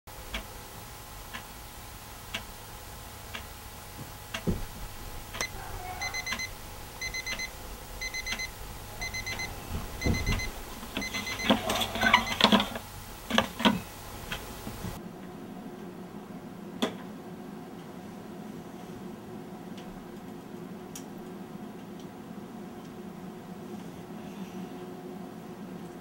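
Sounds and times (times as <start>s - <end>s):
alarm clock ticking: 5.3s - 12.8s
electronic alarm beeping: 5.4s - 12.8s.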